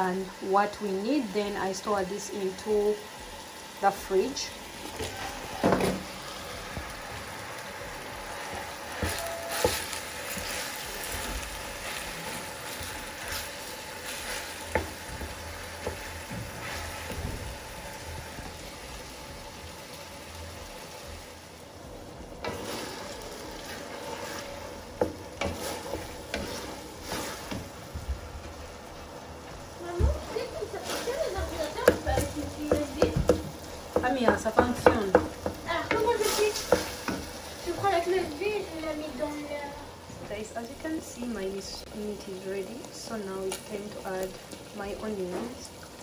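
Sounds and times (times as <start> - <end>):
meat sizzling in a pot: 0.0 - 46.0
wooden spoon scraping a pot: 7.8 - 17.4, 22.4 - 28.5, 30.2 - 38.3.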